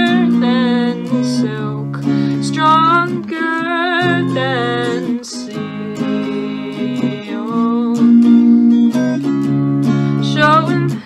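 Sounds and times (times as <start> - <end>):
woman singing: 0.0 - 9.2, 9.8 - 11.0
electric guitar strumming chords: 0.0 - 11.0.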